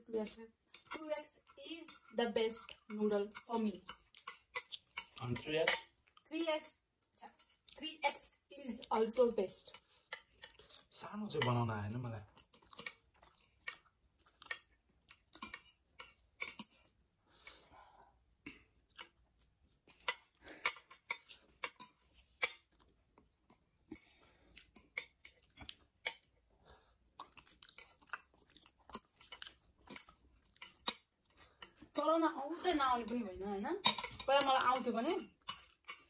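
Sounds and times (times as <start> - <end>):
metal chopsticks tapping plates: 0.1 - 16.9, 19.9 - 22.8, 23.4 - 26.3, 28.9 - 36.0
soft chewing: 0.1 - 36.0.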